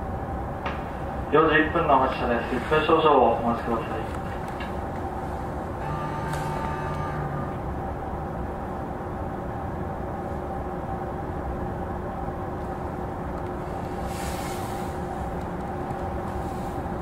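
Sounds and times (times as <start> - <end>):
electric train equipment hum: 0.0 - 17.0
brief hiss: 14.0 - 15.1.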